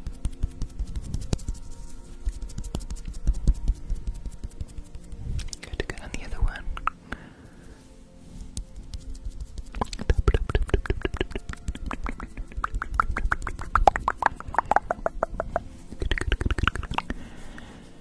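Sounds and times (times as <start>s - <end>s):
wet mouth clicks and pops: 6.7s - 7.2s, 9.7s - 17.2s.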